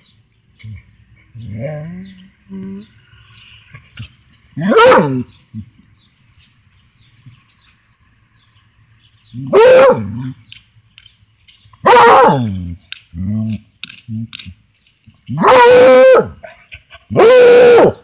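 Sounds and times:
dog barking: 4.6s - 5.2s, 9.5s - 10.2s, 11.8s - 12.5s, 15.4s - 16.4s.

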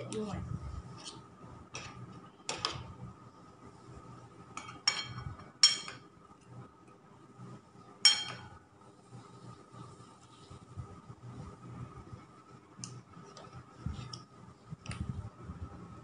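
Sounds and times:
faint steady hum: 0.0s - 16.0s
metal spoon clinking on baking tray: 4.6s - 6.0s, 8.0s - 8.6s.

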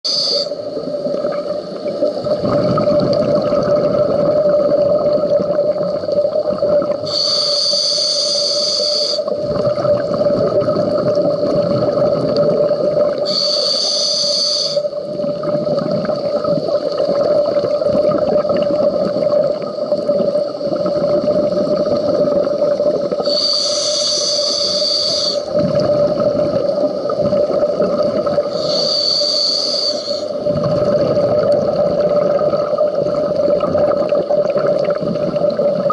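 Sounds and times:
diver breathing through regulator: 0.0s - 0.6s, 7.1s - 9.4s, 13.2s - 15.0s, 23.2s - 25.6s, 28.4s - 30.4s
exhaled bubbles rumbling: 0.6s - 7.2s, 9.3s - 13.3s, 14.9s - 23.4s, 25.4s - 28.6s, 30.3s - 35.9s.

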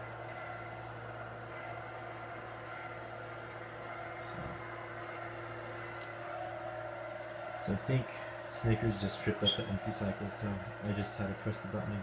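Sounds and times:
motor humming: 0.0s - 12.0s.

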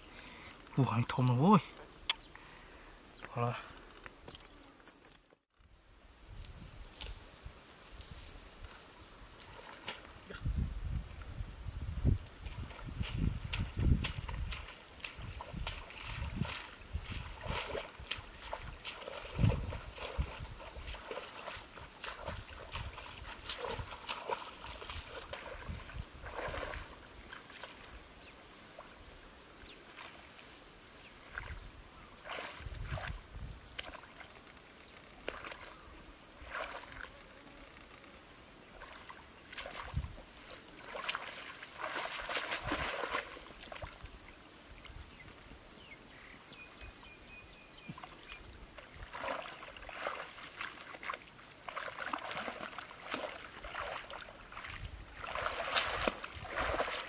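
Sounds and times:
muddy water splashing: 9.4s - 10.4s, 12.3s - 37.2s, 38.6s - 45.1s, 47.8s - 57.0s.

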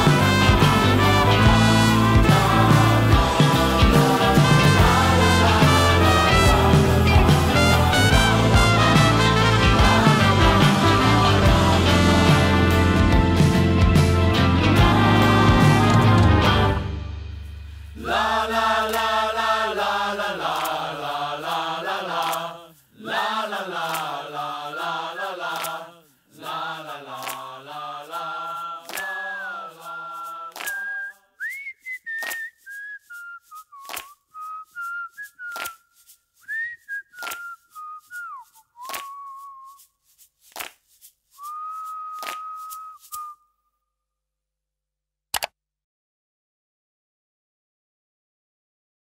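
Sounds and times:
person singing wordless melody: 0.0s - 12.9s, 18.0s - 31.3s
person whistling: 25.0s - 25.4s, 29.0s - 39.9s, 41.4s - 43.5s
sharp clicks: 45.4s - 45.6s.

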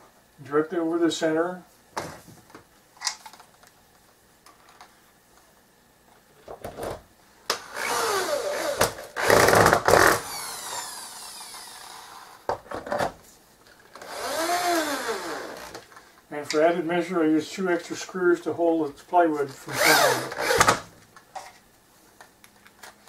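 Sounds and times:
power drill boring into plywood: 7.6s - 12.4s, 14.0s - 15.8s, 19.7s - 20.8s.

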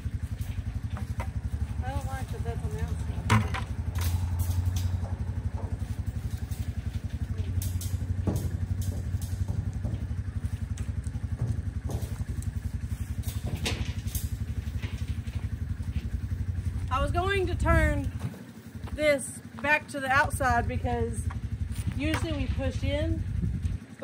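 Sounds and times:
buckets and wire pen clanking: 0.0s - 18.4s
engine idling: 0.0s - 24.0s.

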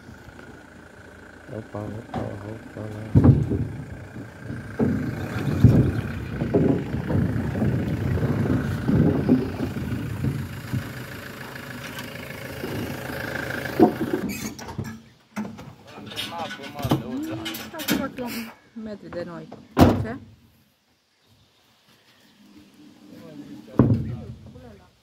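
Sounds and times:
van engine running: 0.0s - 14.6s
wheels thudding over wooden boards: 0.0s - 18.4s, 23.6s - 24.8s.

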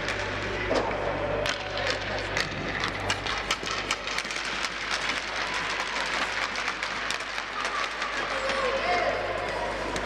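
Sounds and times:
sharp clicks and knocks on ice: 0.0s - 10.0s.

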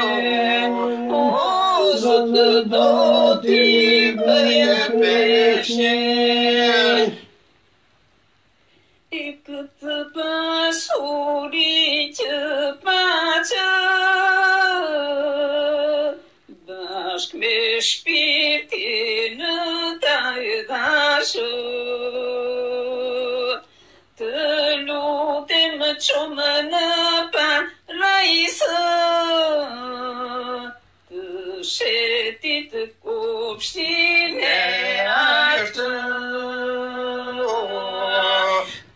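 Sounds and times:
person singing slow melody: 0.0s - 7.2s, 34.3s - 38.9s.

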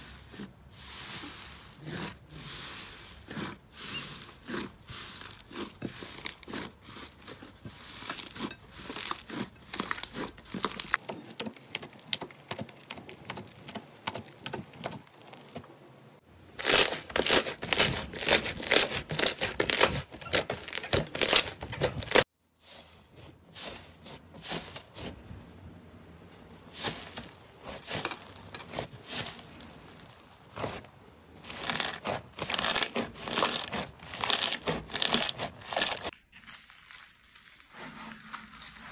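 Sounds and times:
slime crackling and popping: 8.1s - 13.8s, 16.6s - 22.2s, 31.4s - 38.9s.

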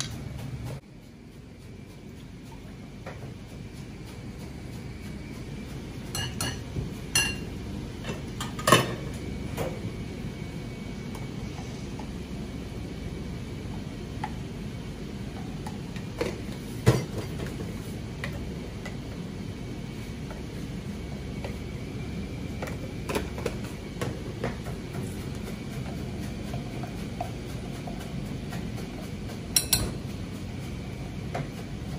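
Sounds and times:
low background hum: 0.0s - 31.9s
metal utensils clinking on dishes: 6.2s - 6.6s, 7.2s - 7.5s, 29.6s - 29.9s.

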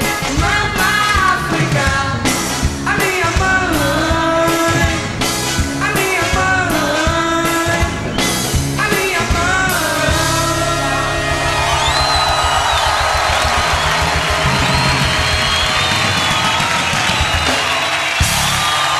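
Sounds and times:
person singing: 0.0s - 5.1s, 5.8s - 8.1s, 8.8s - 11.4s
steady drumbeat: 11.4s - 18.9s.

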